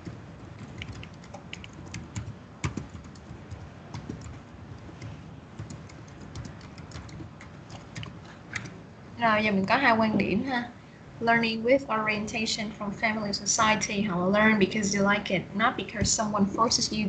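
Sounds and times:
computer keyboard typing: 0.0 - 8.8.

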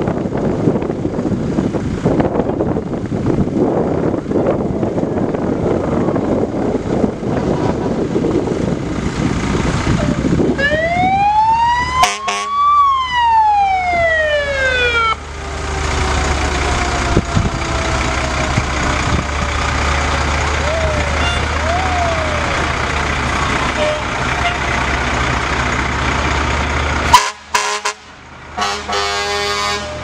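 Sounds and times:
fire truck engines idling: 0.0 - 30.0
fire truck siren wailing: 9.8 - 26.4, 28.6 - 30.0.

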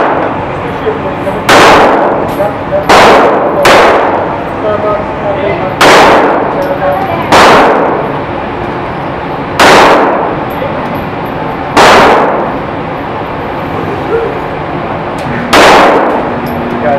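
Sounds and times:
gunshots echoing indoors: 0.0 - 0.4, 1.5 - 4.4, 5.8 - 8.2, 9.6 - 10.5, 11.7 - 12.7, 15.4 - 16.4.

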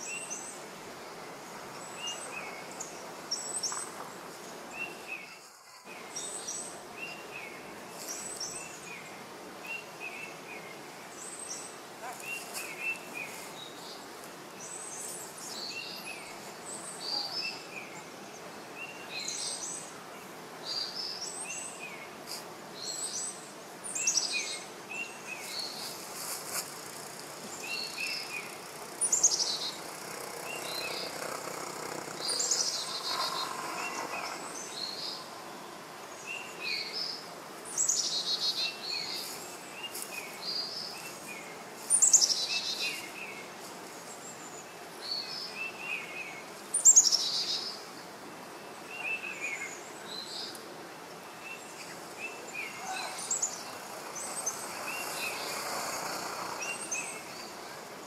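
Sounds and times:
faint outdoor hiss: 0.0 - 58.0
birds chirping and whistling: 22.8 - 37.2, 51.5 - 57.6.

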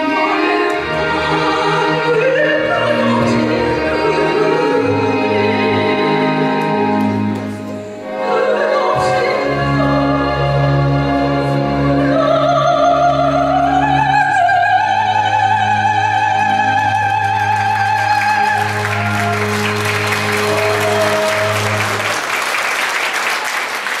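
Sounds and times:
soprano singing with vibrato: 0.0 - 7.2, 8.0 - 19.4
instrumental accompaniment: 0.0 - 22.5
audience applause: 17.1 - 24.0.

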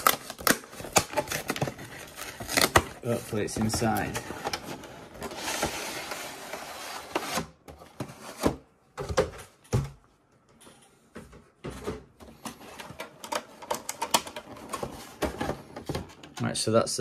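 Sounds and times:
plastic tray clicking and crinkling: 12.7 - 16.5.

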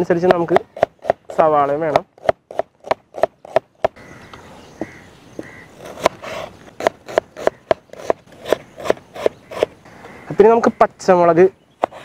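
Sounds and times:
knife chopping on wooden board: 0.1 - 1.3, 1.9 - 4.0, 4.8 - 9.7.

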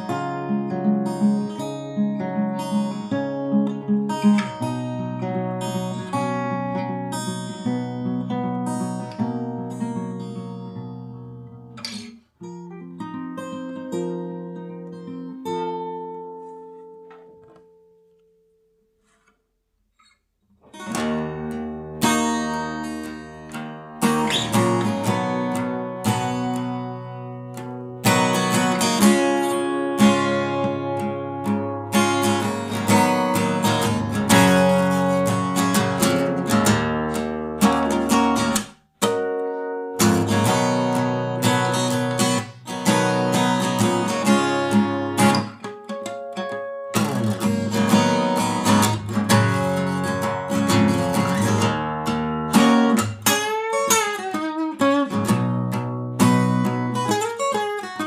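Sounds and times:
acoustic guitar music: 0.0 - 58.0.

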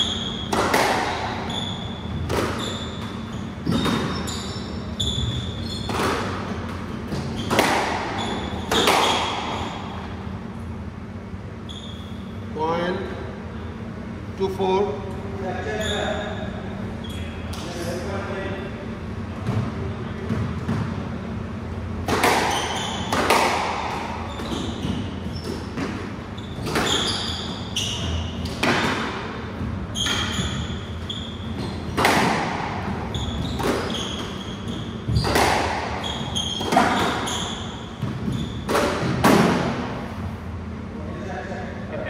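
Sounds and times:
shoe squeaks on wooden floor: 0.0 - 0.6, 1.2 - 6.3, 7.1 - 10.0, 11.6 - 12.4, 15.7 - 16.4, 22.4 - 23.2, 24.0 - 28.6, 29.8 - 32.0, 32.8 - 38.7
squash ball smacking rackets and walls: 0.0 - 10.3, 19.4 - 40.2.

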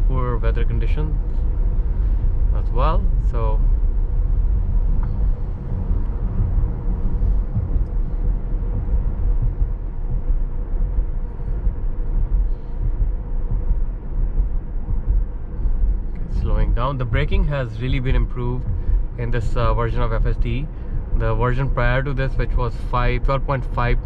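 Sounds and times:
faint steady hum: 0.0 - 24.0
road rumble and tyre noise: 0.0 - 24.0.

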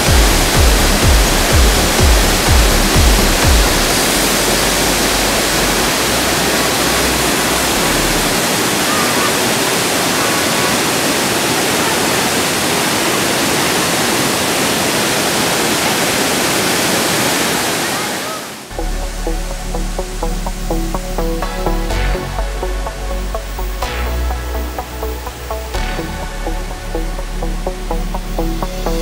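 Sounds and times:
waterfall rushing over rocks: 0.0 - 22.1.

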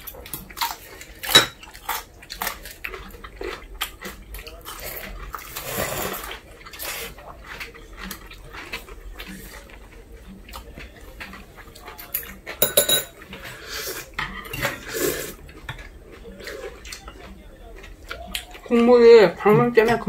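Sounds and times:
metal utensils clinking on bowls: 0.0 - 2.0, 12.0 - 15.9
slurping noodles: 4.0 - 10.0, 13.4 - 15.5.

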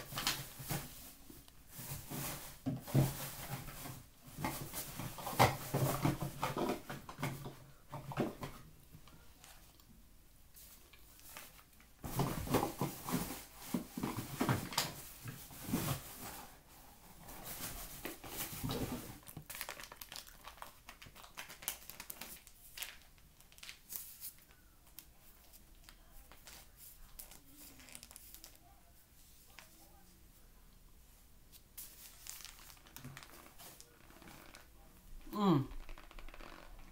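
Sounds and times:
plastic bag crinkling: 17.2 - 28.8, 31.8 - 34.8, 35.7 - 36.9.

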